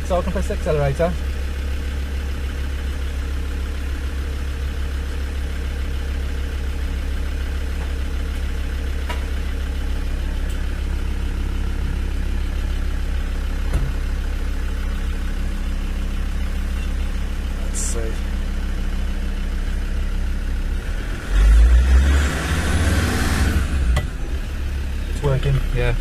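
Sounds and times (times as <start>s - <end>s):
diesel engine running: 0.0s - 26.0s
single knock: 13.7s - 14.0s.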